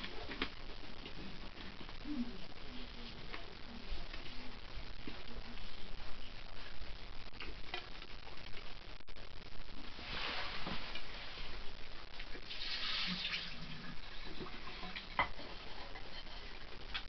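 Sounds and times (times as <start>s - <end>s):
water running into a sink: 12.5s - 15.2s.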